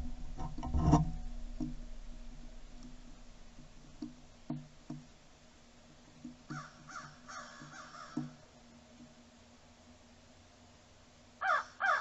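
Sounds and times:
crows cawing: 0:06.5 - 0:08.4, 0:11.4 - 0:12.0.

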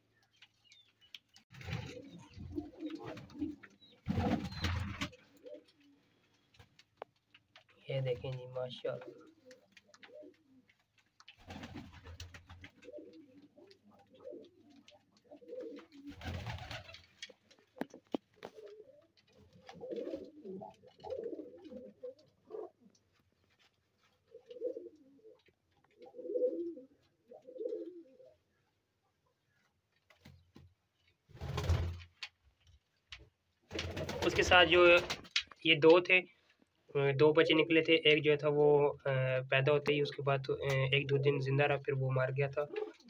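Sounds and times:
pigeon cooing: 0:01.6 - 0:06.2, 0:08.9 - 0:10.8, 0:12.7 - 0:16.9, 0:18.1 - 0:22.9, 0:24.3 - 0:28.6, 0:42.5 - 0:43.0.

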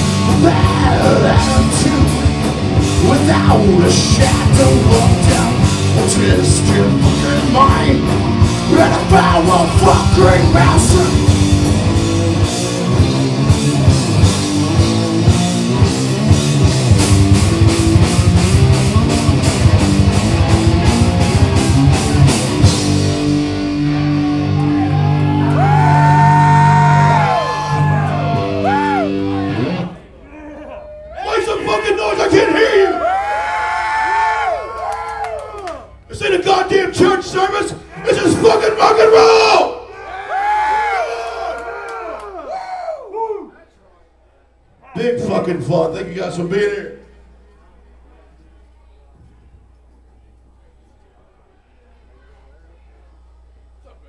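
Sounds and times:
fast driving drums: 0:00.0 - 0:29.1
distorted electric guitars: 0:00.0 - 0:30.3
shouted vocals: 0:24.4 - 0:36.6, 0:37.2 - 0:43.7.

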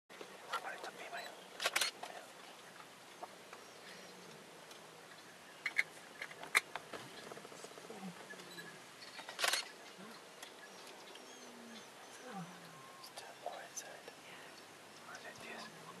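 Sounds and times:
camera shutter clicks: 0:01.6 - 0:02.0, 0:09.3 - 0:09.7.

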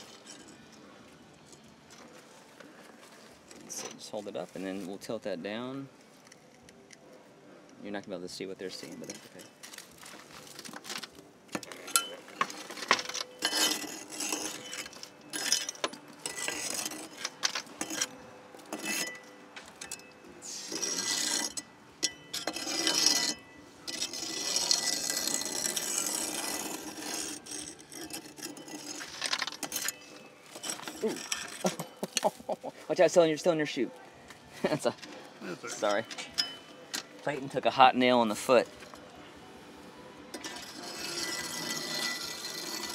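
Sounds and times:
steel hook scraping coals: 0:08.7 - 0:39.0, 0:40.3 - 0:42.9
coals clinking: 0:08.7 - 0:39.3.

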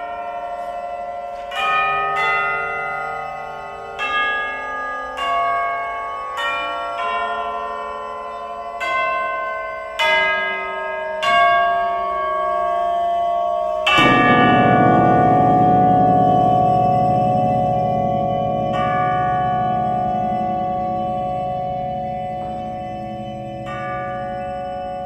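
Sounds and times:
tubular bells melody: 0:00.0 - 0:25.0
low sustained tones: 0:11.9 - 0:25.0.

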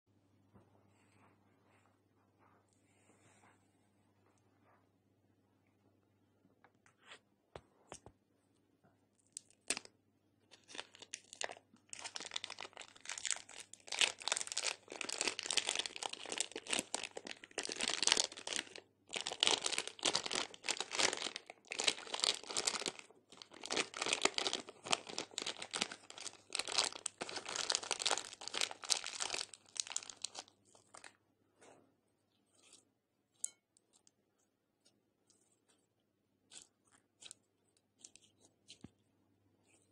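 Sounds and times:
plastic bag crinkling and tearing: 0:10.6 - 0:31.1.

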